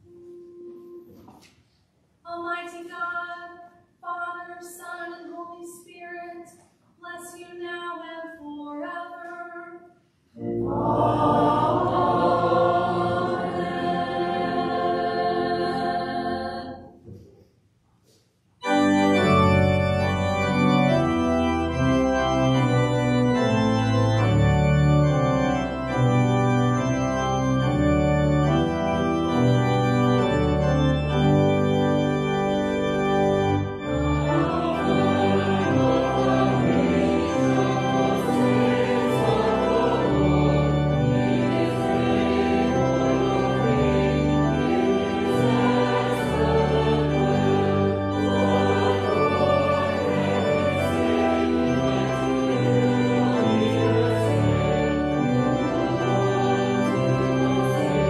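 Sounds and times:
church organ playing: 0:00.0 - 0:01.5, 0:07.2 - 0:17.0, 0:18.6 - 0:58.0
voices singing: 0:10.4 - 0:16.9, 0:34.2 - 0:54.7.

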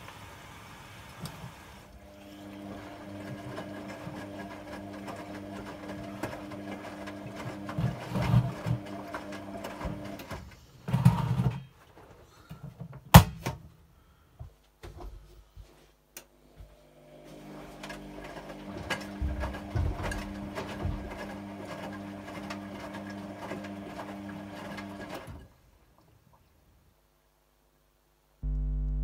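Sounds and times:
washing machine motor humming: 0:00.7 - 0:10.4, 0:16.7 - 0:25.5, 0:28.4 - 0:29.0
wet laundry sloshing and thudding: 0:18.6 - 0:21.6.

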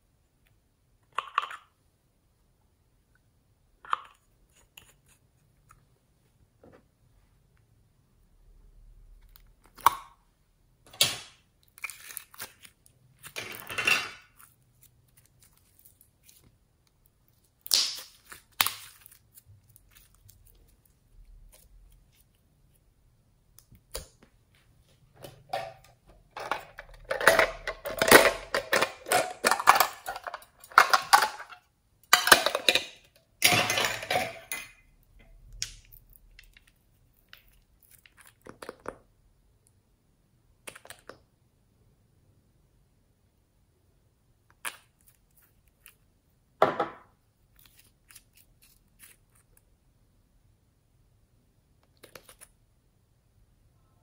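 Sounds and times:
slime squeezed crackling and popping: 0:17.5 - 0:20.5.

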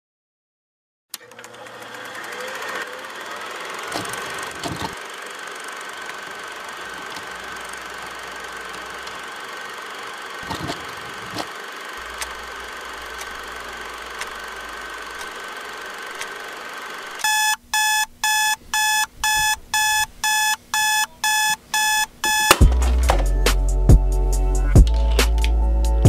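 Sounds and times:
steady hum: 0:03.0 - 0:25.4
digital alarm clock beeping: 0:17.2 - 0:22.6
hip-hop beat with heavy bass: 0:22.4 - 0:26.0.

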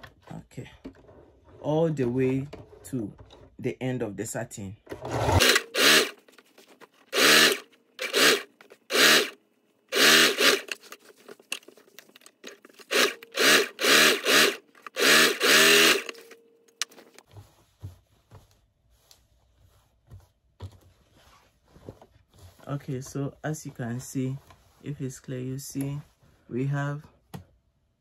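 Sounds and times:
electric sewing machine stitching: 0:05.0 - 0:06.2, 0:07.1 - 0:10.8, 0:12.8 - 0:16.4.

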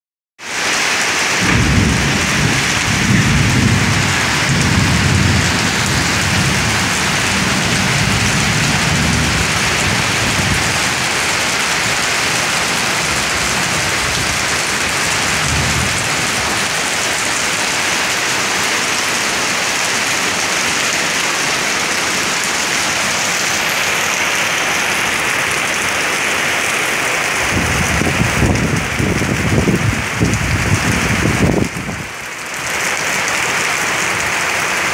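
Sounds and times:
heavy rain hissing: 0:00.4 - 0:34.9
low rolling thunder: 0:01.4 - 0:16.9, 0:27.4 - 0:32.1.

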